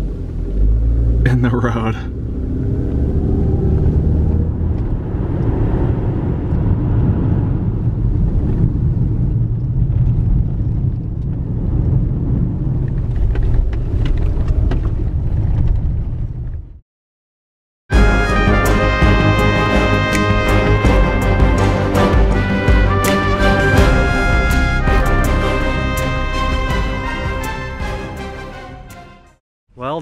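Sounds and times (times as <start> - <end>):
car cabin engine and road rumble: 0.0 - 16.7.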